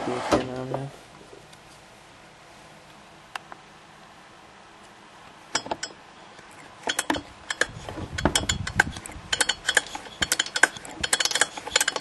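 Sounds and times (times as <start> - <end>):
plastic and metal parts clinking: 6.8 - 12.0.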